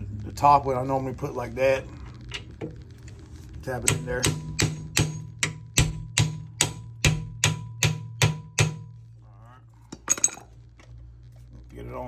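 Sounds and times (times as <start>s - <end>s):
hammer striking metal: 3.9s - 8.9s.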